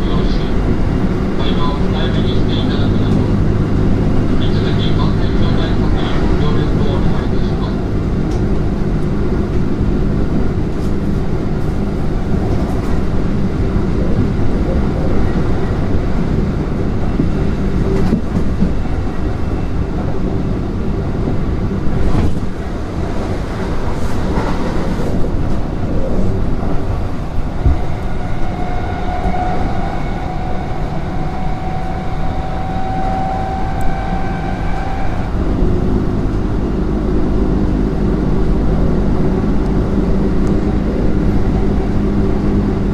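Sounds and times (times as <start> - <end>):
train wheels rumbling on rail: 0.0 - 42.9.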